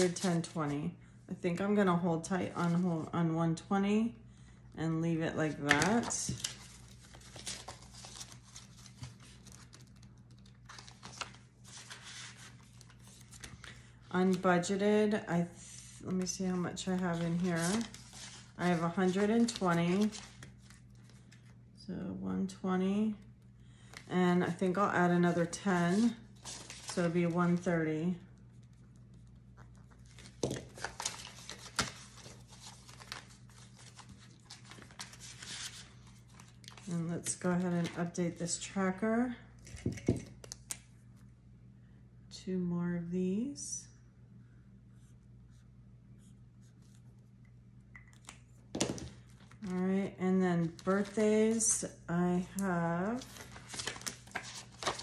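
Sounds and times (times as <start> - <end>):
banknotes rustling: 5.6 - 14.4, 16.1 - 21.5, 25.6 - 27.9, 29.9 - 38.2, 50.6 - 51.7, 53.0 - 55.0
plastic envelopes crinkling: 5.8 - 13.8, 16.9 - 21.5, 25.9 - 27.6, 29.8 - 38.0, 53.1 - 55.0.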